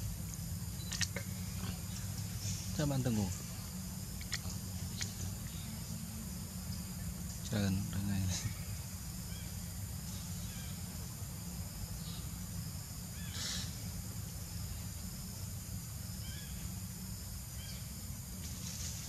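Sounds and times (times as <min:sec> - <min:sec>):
low outdoor background noise: 0:00.0 - 0:19.0.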